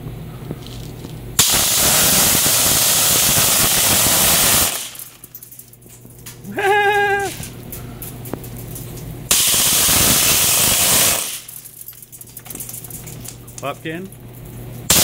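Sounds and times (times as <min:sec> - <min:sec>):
compressed air hissing: 0:01.4 - 0:05.0, 0:09.3 - 0:11.5
short voice sound: 0:06.5 - 0:07.5.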